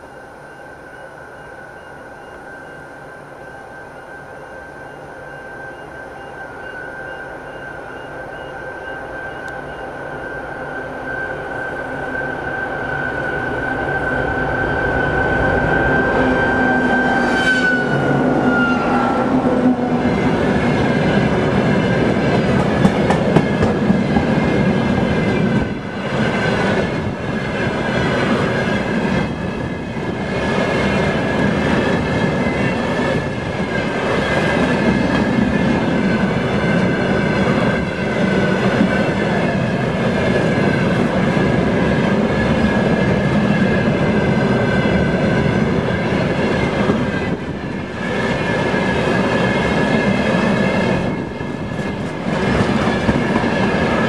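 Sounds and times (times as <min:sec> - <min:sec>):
diesel locomotive engine drone: 0:00.0 - 0:54.0
train wagons rumbling: 0:14.5 - 0:54.0.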